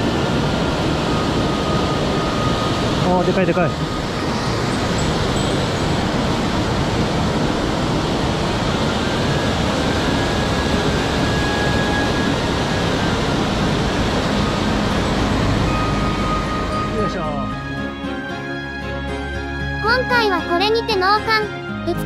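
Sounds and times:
small waterfall rushing: 0:00.0 - 0:17.6.

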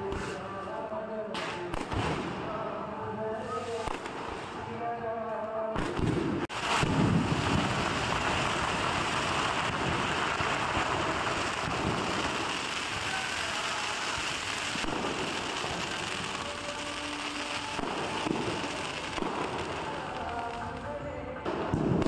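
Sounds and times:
fireworks crackling: 0:00.0 - 0:00.8, 0:01.4 - 0:05.0, 0:05.7 - 0:22.0
fireworks shells booming: 0:05.8 - 0:20.8.

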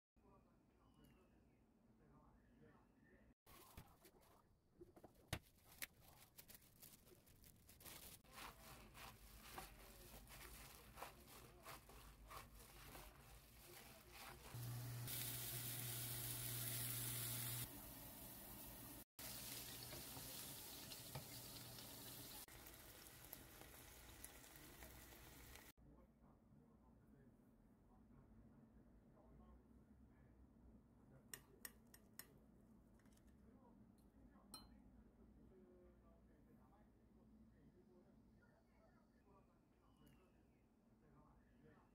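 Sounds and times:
wet squelches of kneading meat: 0:05.4 - 0:15.3
patty sizzling in a pan: 0:05.8 - 0:25.7.

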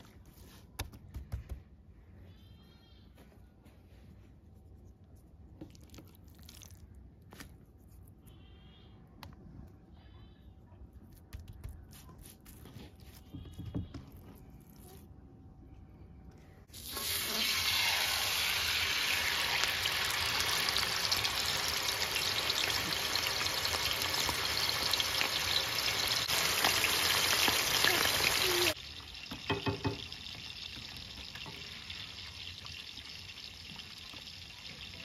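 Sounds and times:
meat laid into hot oil: 0:16.7 - 0:35.0
meat sizzling in oil: 0:16.8 - 0:35.0.

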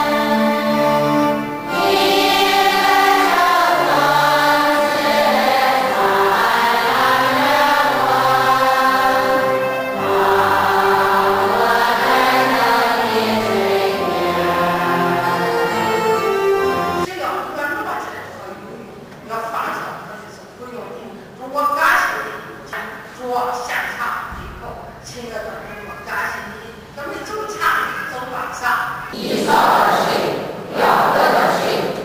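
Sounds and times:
congregation singing: 0:00.0 - 0:17.1, 0:29.1 - 0:32.0.

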